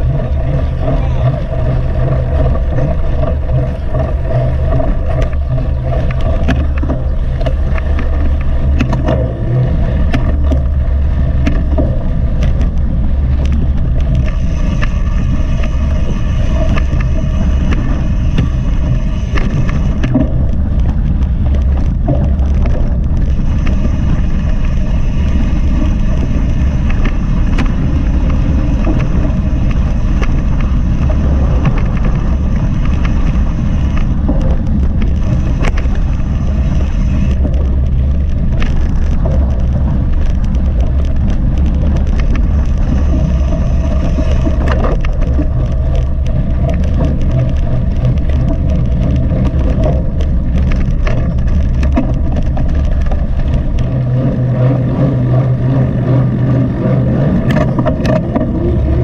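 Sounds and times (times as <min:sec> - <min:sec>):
bike clicks and rattles: 0:00.0 - 0:59.0
wind and vibration rumble: 0:00.0 - 0:59.0.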